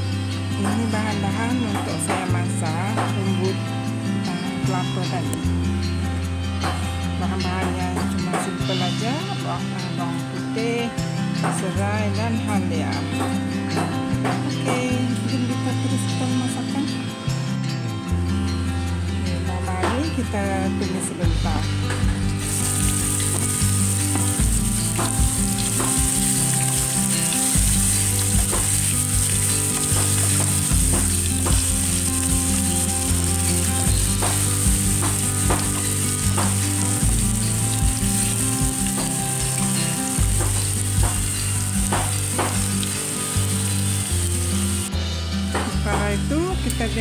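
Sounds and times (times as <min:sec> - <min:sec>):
aromatics sizzling in hot oil: 0:21.9 - 0:45.6
spatula scraping and tapping pan: 0:22.6 - 0:37.1.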